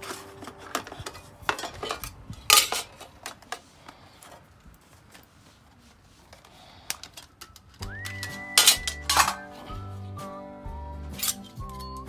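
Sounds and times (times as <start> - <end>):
metal cookware clinking: 0.0 - 3.1, 8.6 - 9.5, 11.1 - 12.0.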